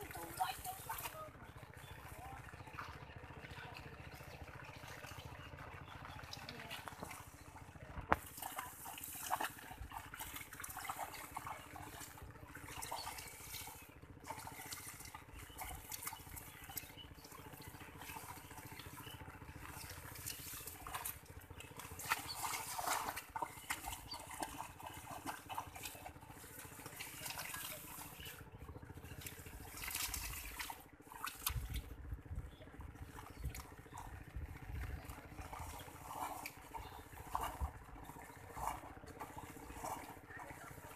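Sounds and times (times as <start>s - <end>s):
hands splashing in muddy water: 8.1s - 40.9s
wet weeds rustling: 29.1s - 34.2s.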